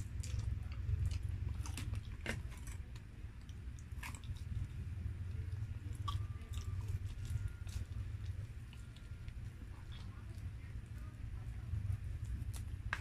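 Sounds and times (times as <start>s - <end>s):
chewing mouth sounds: 0.0s - 10.9s.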